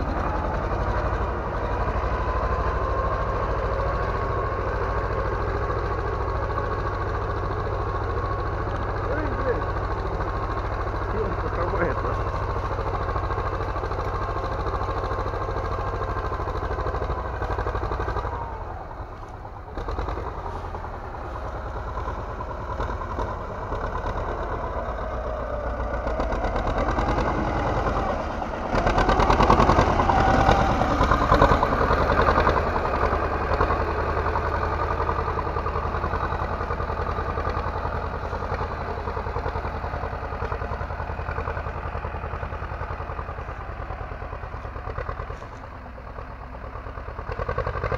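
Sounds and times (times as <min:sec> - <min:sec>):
diesel tractor engine under load: 0:00.0 - 0:47.9.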